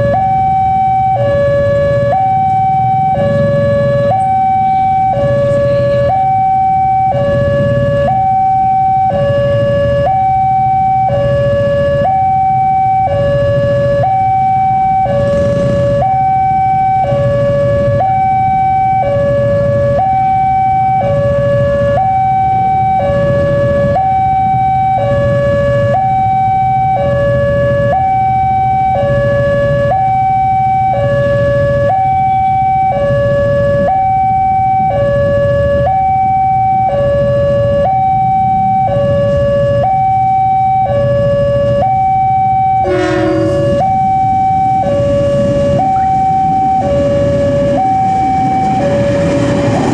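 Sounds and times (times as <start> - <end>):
two-tone level-crossing alarm: 0.0 - 49.9
low rumble: 43.0 - 49.9.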